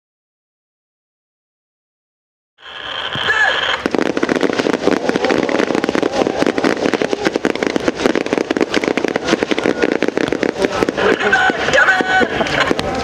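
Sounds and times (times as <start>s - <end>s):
rapid rifle gunfire: 3.7s - 13.0s.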